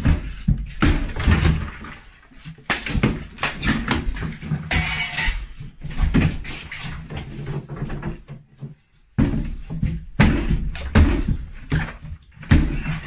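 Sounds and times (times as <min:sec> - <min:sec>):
watermelon smashing thuds: 0:10.2 - 0:13.0.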